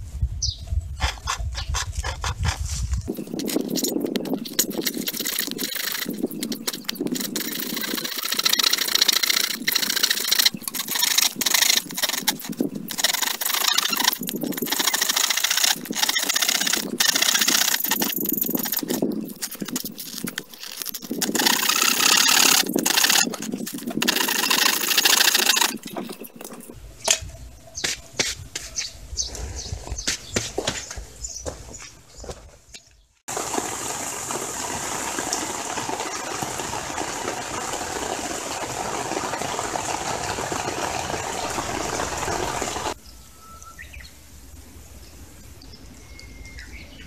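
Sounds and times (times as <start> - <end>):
hand saw cutting plastic pipe: 3.4 - 26.6.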